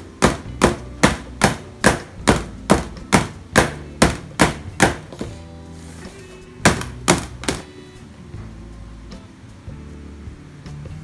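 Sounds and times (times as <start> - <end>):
cake pan knocking on steel counter: 0.2 - 5.3, 6.7 - 7.6.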